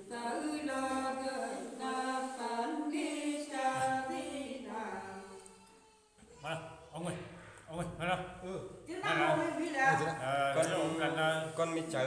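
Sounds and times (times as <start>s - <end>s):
woman singing unaccompanied: 0.0s - 5.4s.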